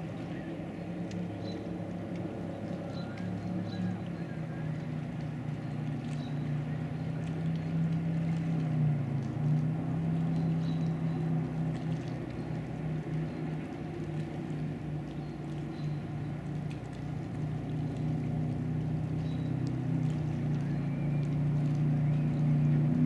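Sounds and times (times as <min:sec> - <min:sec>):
boat engine drone: 0:00.0 - 0:23.0.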